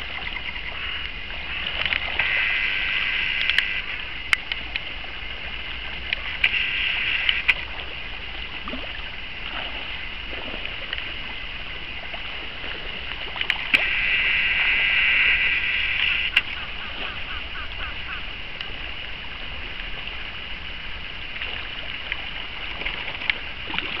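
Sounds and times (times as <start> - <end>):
river water rushing over gravel: 0.0 - 24.0
sharp clicks: 3.3 - 4.8.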